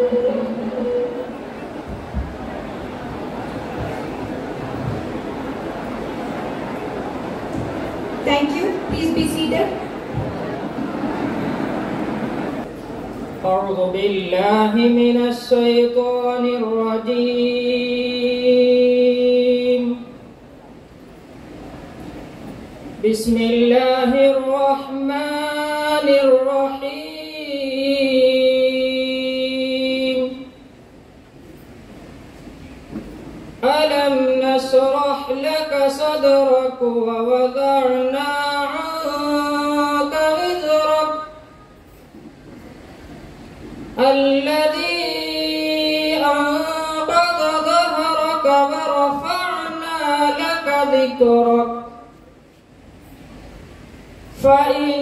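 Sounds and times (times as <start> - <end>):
person singing slow melody: 0.0 - 1.5
man chanting: 13.4 - 20.1, 33.6 - 41.5, 44.0 - 52.1, 54.4 - 55.0.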